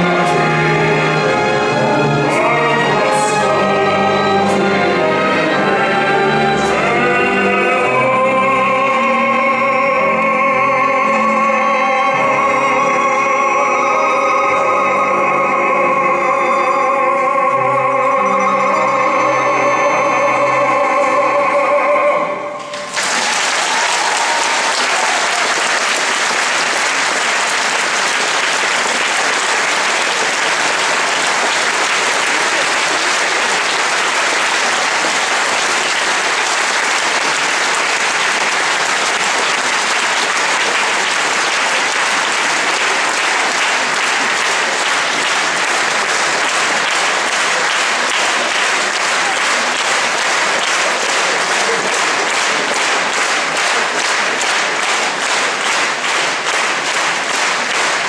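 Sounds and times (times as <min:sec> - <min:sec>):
baritone singing with orchestra: 0:00.0 - 0:22.9
audience applause: 0:22.6 - 0:58.0.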